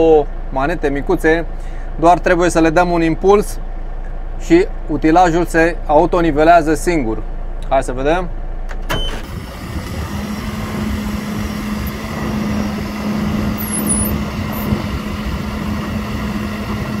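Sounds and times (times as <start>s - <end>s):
diesel engine and hydraulics: 0.0s - 2.6s, 8.3s - 17.0s
steady hum: 9.4s - 17.0s.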